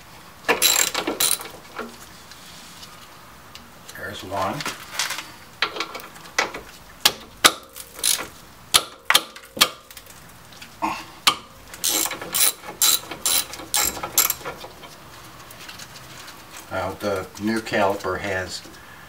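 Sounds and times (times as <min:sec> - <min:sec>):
socket ratchet clicking: 0:00.6 - 0:01.5, 0:11.8 - 0:14.4.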